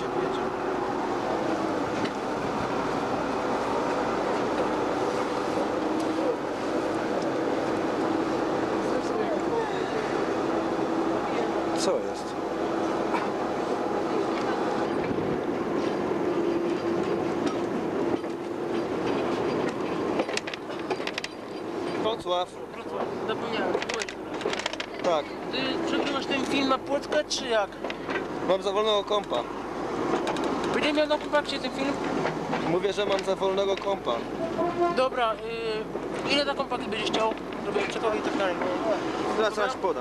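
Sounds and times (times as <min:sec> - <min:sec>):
diesel locomotive engine drone: 0:00.0 - 0:40.0
train wheels running on track: 0:00.0 - 0:40.0
wheels clicking over track: 0:16.6 - 0:25.2.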